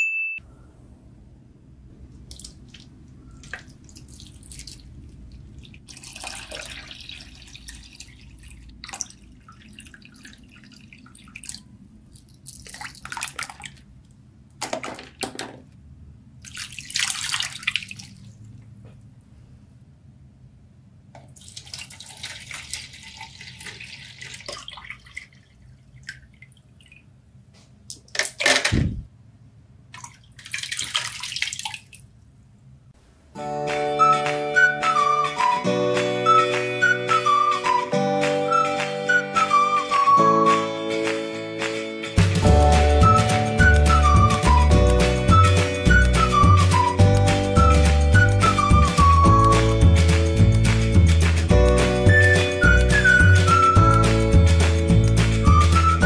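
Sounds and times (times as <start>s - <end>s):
water pouring and splashing: 2.2s - 14.0s, 16.4s - 18.6s, 21.2s - 27.1s, 29.9s - 32.1s
loud low thump: 28.7s - 29.1s.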